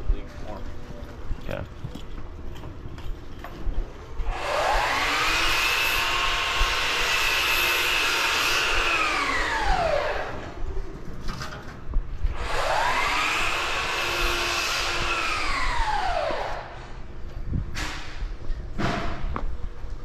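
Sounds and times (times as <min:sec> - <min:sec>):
electric blower whining: 0:04.2 - 0:10.6, 0:12.3 - 0:17.0.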